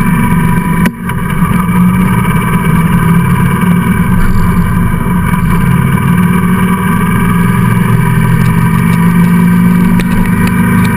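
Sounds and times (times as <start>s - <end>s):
motorcycle engine cruising: 0.0s - 10.9s.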